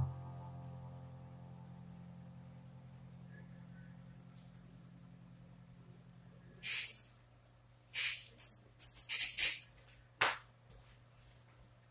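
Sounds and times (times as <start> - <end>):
low digital piano chord: 0.0 - 6.6.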